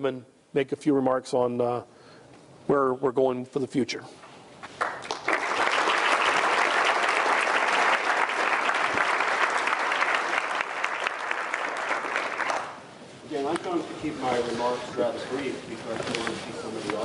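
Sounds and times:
audience applauding: 0:04.8 - 0:12.8.

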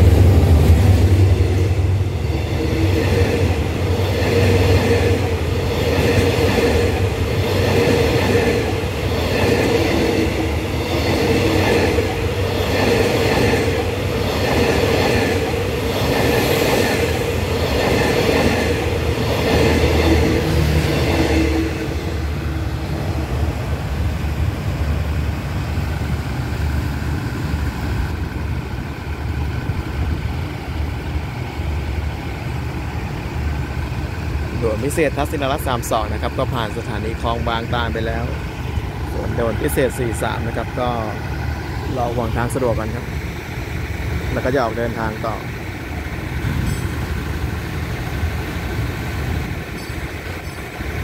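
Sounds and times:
train wheels clattering: 0:00.0 - 0:23.8, 0:33.5 - 0:51.0
train hum: 0:00.0 - 0:51.0.

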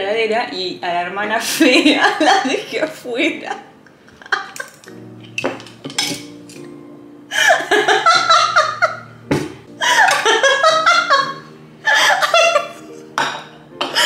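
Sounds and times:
woman laughing: 0:04.1 - 0:04.9, 0:07.3 - 0:09.0, 0:09.8 - 0:12.9.

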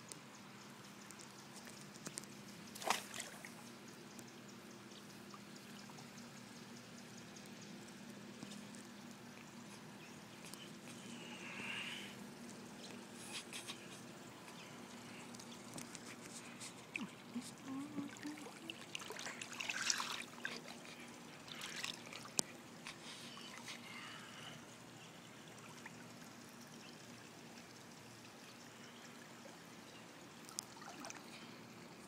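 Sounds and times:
steady low hum: 0:00.0 - 0:30.4
water trickling and lapping: 0:00.4 - 0:32.0
brief splash: 0:02.8 - 0:03.5.

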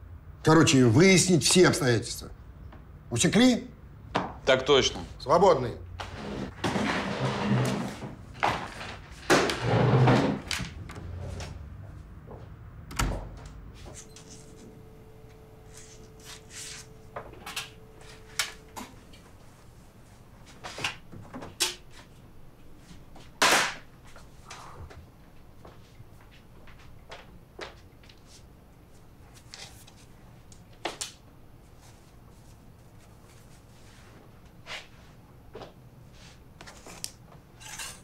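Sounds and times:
folders and chairs handled: 0:06.0 - 0:11.7
faint steady hum: 0:10.6 - 0:38.0.

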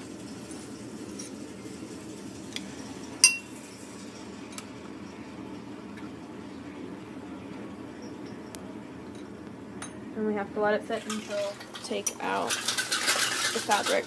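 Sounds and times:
steady low hum: 0:00.0 - 0:11.1
glass beakers clinking: 0:03.2 - 0:03.6.

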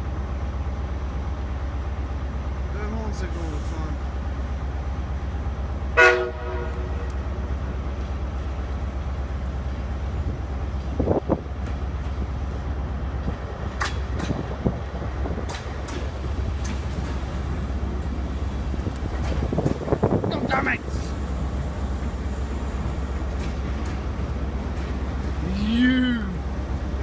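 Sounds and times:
train rolling rumble: 0:00.0 - 0:27.0
train horn blast: 0:06.0 - 0:07.2.

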